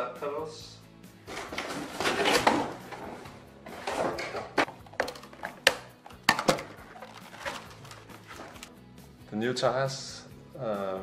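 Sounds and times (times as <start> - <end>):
cardboard flaps and tape rustling: 3.8 - 8.7.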